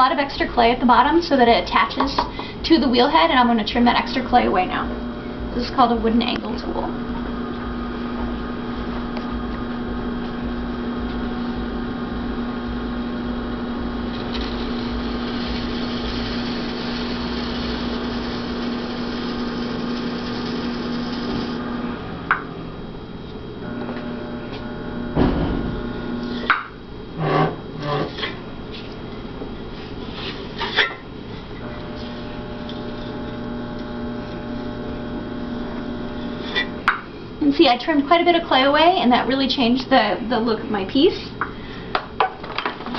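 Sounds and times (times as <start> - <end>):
pottery wheel motor humming: 0.0 - 42.9.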